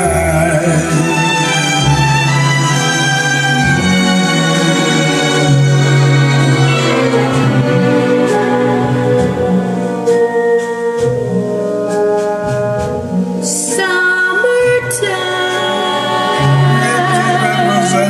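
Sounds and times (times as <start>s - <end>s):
person singing: 0.0s - 1.8s, 13.4s - 18.0s
orchestral music through loudspeakers: 0.0s - 18.0s.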